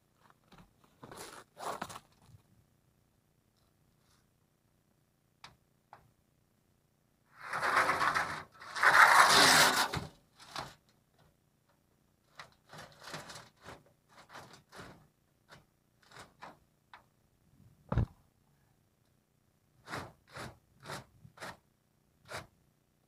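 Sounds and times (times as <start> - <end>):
loud scrapes: 7.3 - 10.1.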